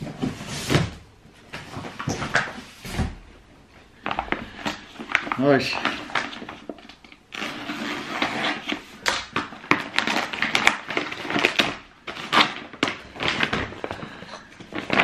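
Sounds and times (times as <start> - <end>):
paper crinkling and tearing: 4.0 - 15.0.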